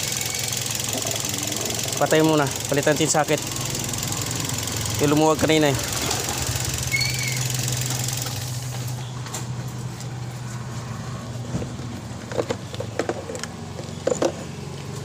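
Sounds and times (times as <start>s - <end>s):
car engine idling: 0.0s - 9.1s.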